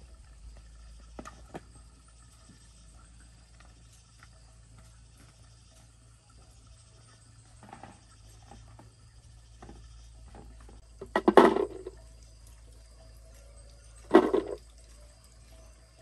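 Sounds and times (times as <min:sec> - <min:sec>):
bulbs clattering into a glass jar: 0:11.0 - 0:12.0, 0:14.0 - 0:14.7.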